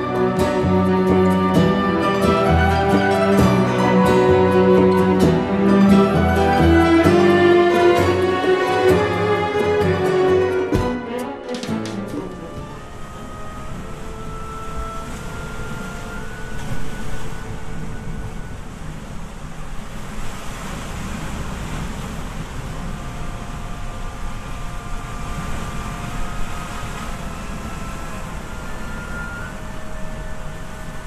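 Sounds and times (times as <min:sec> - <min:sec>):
wind rumble on microphone: 0:12.4 - 0:31.0.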